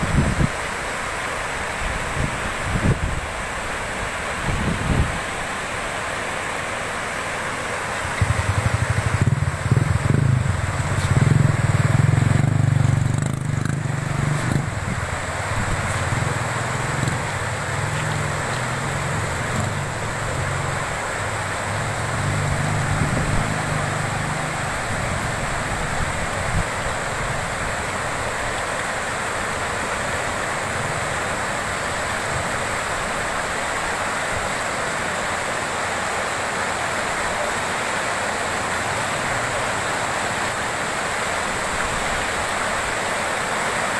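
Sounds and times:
floodwater rushing: 0.0s - 43.9s
low engine hum: 7.0s - 32.8s.

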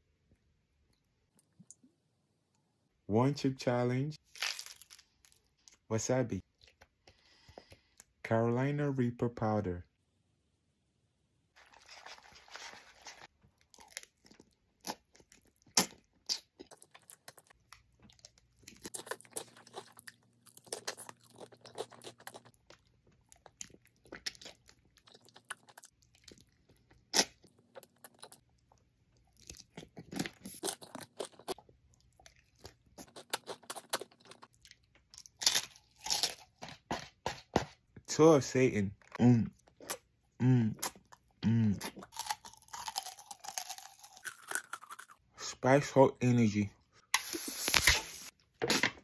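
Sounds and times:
crunchy bites: 4.2s - 5.8s, 11.6s - 28.4s, 29.2s - 37.7s, 41.7s - 45.2s
person slurping and chewing noodles: 11.6s - 34.7s.

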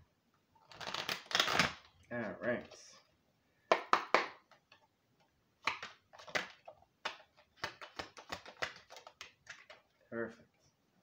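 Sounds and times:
cards being shuffled: 0.6s - 2.8s, 5.6s - 9.9s.

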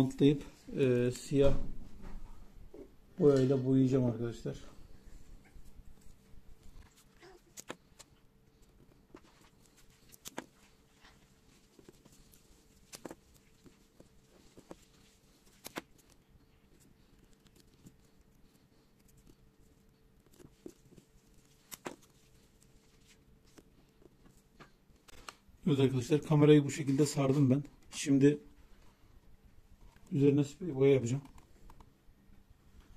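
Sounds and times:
tape clicks and crackles: 6.8s - 25.5s.

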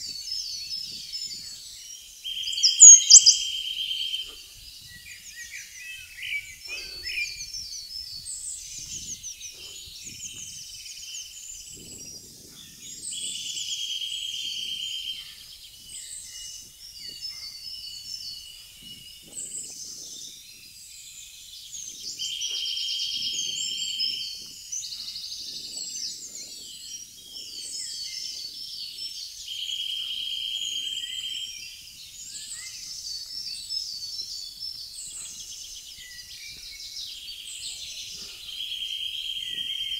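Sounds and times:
songbirds singing: 0.0s - 39.9s
bird rapid trill: 2.4s - 3.5s.

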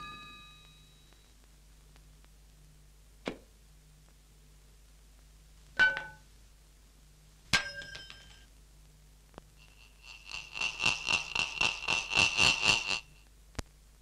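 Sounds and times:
metallic clangs ringing: 0.0s - 1.0s, 5.8s - 6.3s, 7.5s - 8.5s.

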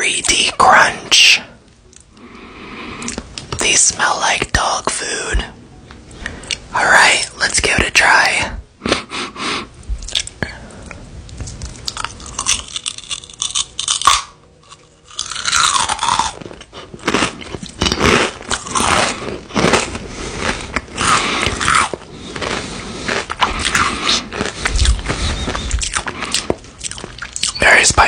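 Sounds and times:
crunchy snack chewing: 10.0s - 10.4s, 11.3s - 27.6s.

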